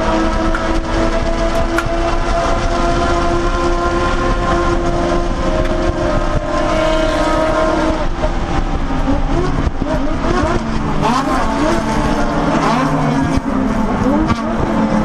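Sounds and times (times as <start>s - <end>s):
race car engine under load: 0.0s - 15.0s.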